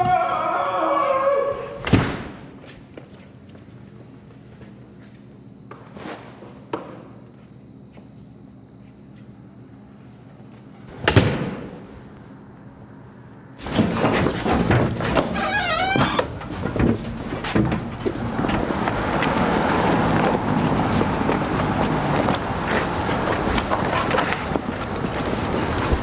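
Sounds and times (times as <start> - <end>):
door slamming shut: 1.8 - 2.4, 11.0 - 11.7
busy street noise: 18.2 - 26.0.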